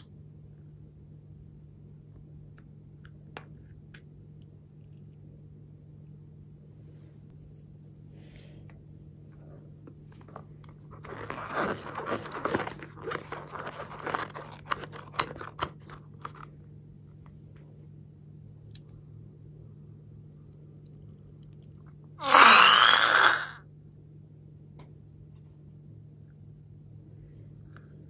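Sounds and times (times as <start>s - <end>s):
rubber balloon crinkling: 10.2s - 16.5s.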